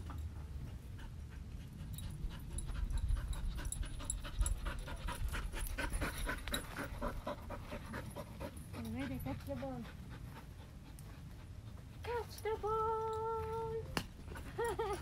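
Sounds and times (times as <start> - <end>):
dog panting: 0.0 - 13.2, 14.2 - 15.0.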